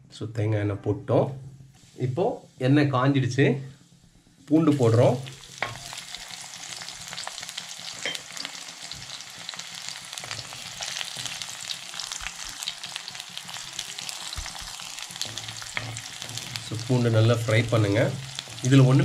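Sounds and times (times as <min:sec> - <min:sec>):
garlic sizzling in oil: 0:04.4 - 0:19.0
wooden spatula scraping pot: 0:13.8 - 0:19.0.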